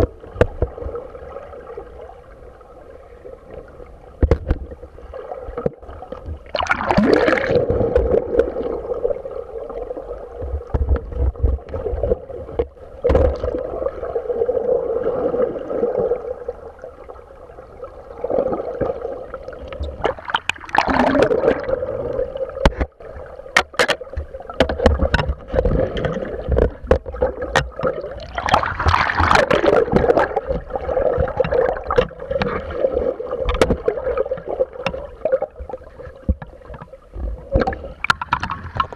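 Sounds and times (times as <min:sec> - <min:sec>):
muffled water sloshing underwater: 0:00.0 - 0:38.9
sharp clicks and knocks: 0:04.2 - 0:04.7, 0:10.4 - 0:11.8, 0:22.6 - 0:23.0, 0:23.6 - 0:32.6, 0:33.4 - 0:35.2, 0:36.0 - 0:38.9
surges of rushing water: 0:06.4 - 0:09.2, 0:18.2 - 0:22.9, 0:24.5 - 0:36.4.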